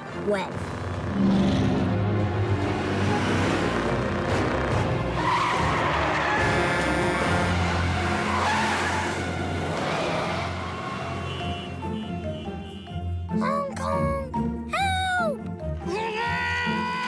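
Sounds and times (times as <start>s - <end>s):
background music: 0.0s - 17.0s
tires skidding and squealing: 2.7s - 11.8s.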